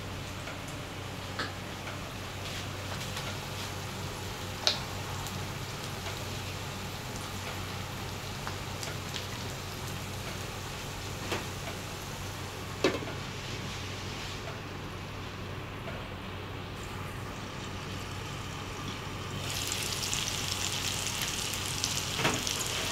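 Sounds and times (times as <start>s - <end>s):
omelet sizzling in a skillet: 16.8s - 22.9s.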